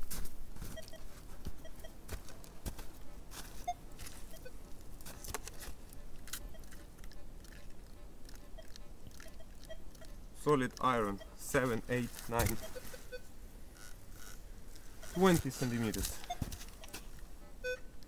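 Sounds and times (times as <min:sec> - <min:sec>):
footsteps crunching on snow: 0:00.0 - 0:06.9, 0:11.5 - 0:13.2, 0:14.8 - 0:17.3
clicks and rustles: 0:05.0 - 0:08.4.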